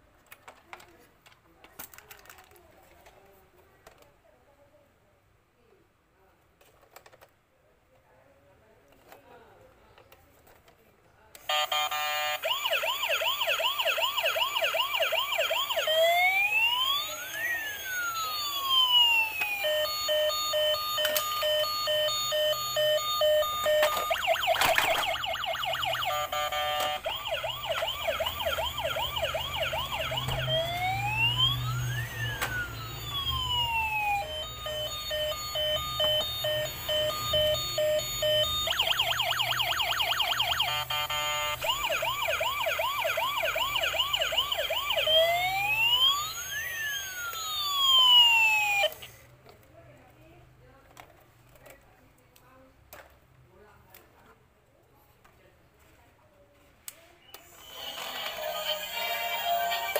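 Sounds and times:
toy electronic siren: 11.5s - 49.1s, 57.4s - 59.9s.

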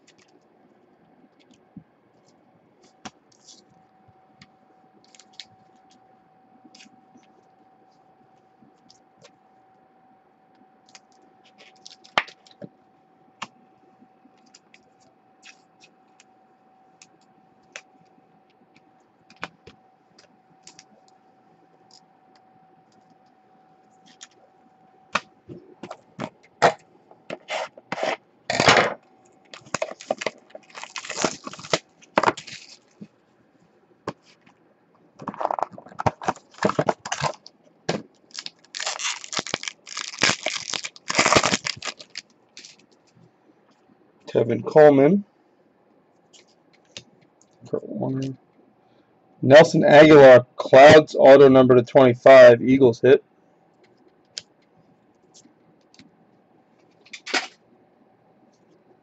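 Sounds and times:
faint steady tone: 0.0s - 30.6s, 42.2s - 57.0s.

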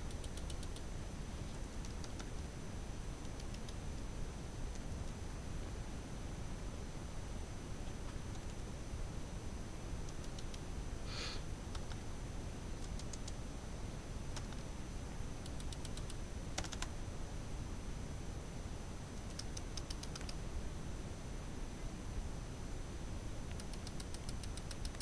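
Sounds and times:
bird feet clicking laptop keys: 0.1s - 0.9s, 1.8s - 2.4s, 15.4s - 16.9s, 19.2s - 20.4s.

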